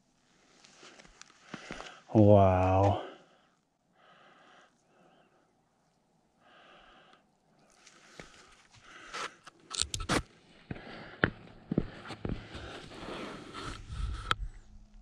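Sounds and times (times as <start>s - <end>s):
soft breaths: 0.2s - 2.2s, 2.9s - 9.6s, 10.5s - 14.6s
helmet rustling and scraping: 0.3s - 2.0s, 11.9s - 14.2s.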